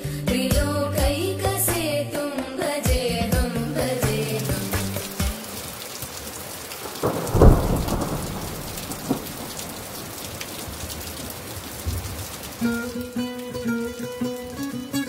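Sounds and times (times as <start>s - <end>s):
rain falling on grass: 4.0s - 15.0s
low rumble of thunder: 6.8s - 12.3s.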